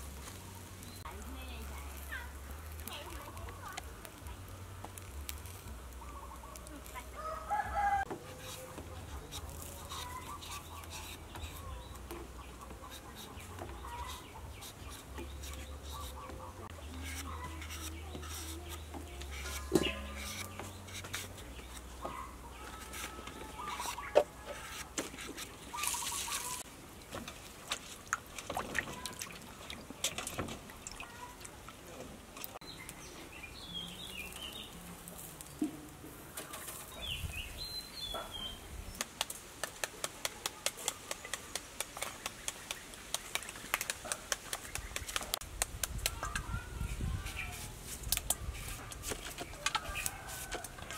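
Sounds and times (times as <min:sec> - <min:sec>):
small birds calling: 0:05.7 - 0:24.8, 0:25.4 - 0:26.7, 0:36.4 - 0:39.1.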